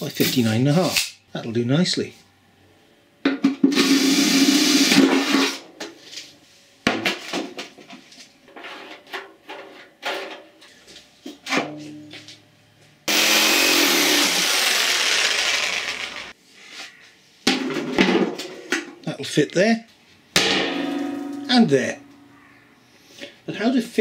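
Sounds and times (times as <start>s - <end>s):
cordless drill on steel drum: 3.7s - 5.6s, 13.1s - 16.4s
electric saw cutting plywood: 3.7s - 5.6s, 13.1s - 16.4s
metal drum knocking and scraping: 20.4s - 22.1s.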